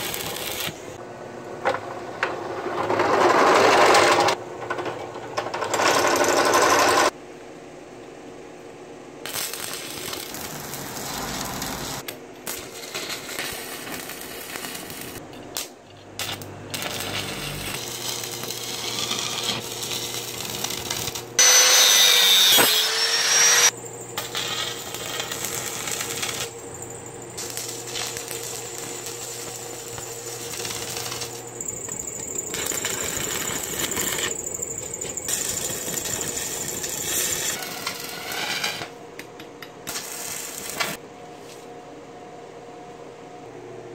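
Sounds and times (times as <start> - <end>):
welding arc crackling: 0.0 - 0.9, 9.2 - 39.0, 39.8 - 41.0
power tool running: 16.7 - 38.1.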